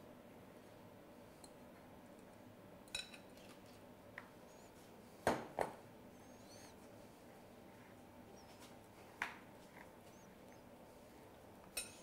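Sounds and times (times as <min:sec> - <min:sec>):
faint high chirps: 0:06.1 - 0:06.8
metal fork clinking on bowl: 0:11.8 - 0:12.0.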